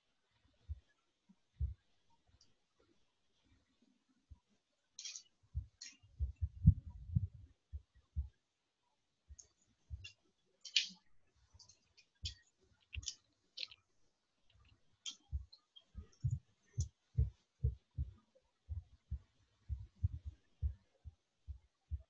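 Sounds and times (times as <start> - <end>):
dull low thumps: 5.6 - 8.4, 15.3 - 22.0
sharp clicks: 9.4 - 13.8.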